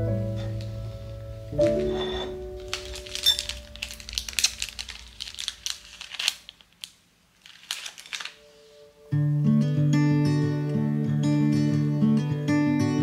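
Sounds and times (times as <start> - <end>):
crinkling and rustling: 0.3 - 8.9
strummed acoustic guitar music: 9.1 - 13.0.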